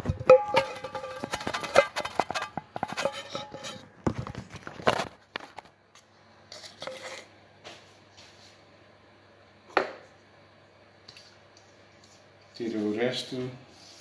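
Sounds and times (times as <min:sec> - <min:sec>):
phone knocking on metal bowl: 0:00.0 - 0:01.9.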